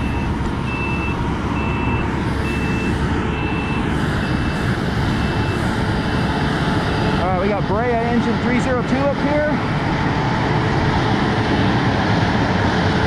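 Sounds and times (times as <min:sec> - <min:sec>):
vehicle backup alarm beeping: 0:00.0 - 0:07.4
idling engines rumble: 0:00.0 - 0:13.0.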